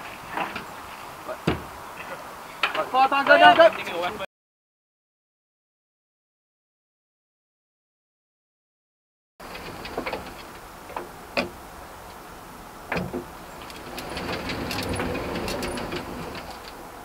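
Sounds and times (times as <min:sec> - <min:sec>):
rattling ticks: 0:09.4 - 0:12.2, 0:12.9 - 0:16.9.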